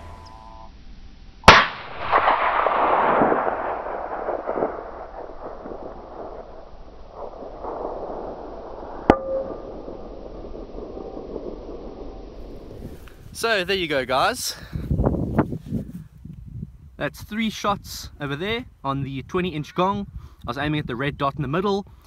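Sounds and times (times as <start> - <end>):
rifle shots: 1.5 - 12.9.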